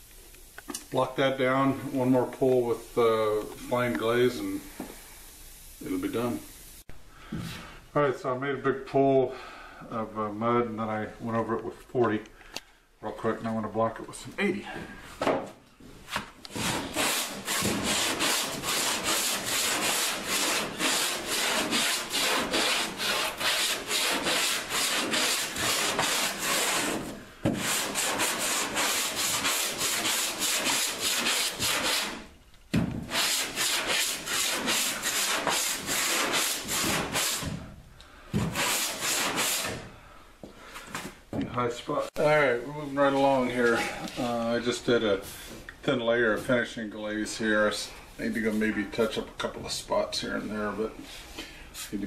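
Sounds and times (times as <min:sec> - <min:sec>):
sandpaper rasping strokes: 0:16.5 - 0:32.3, 0:33.1 - 0:37.6, 0:38.4 - 0:39.9.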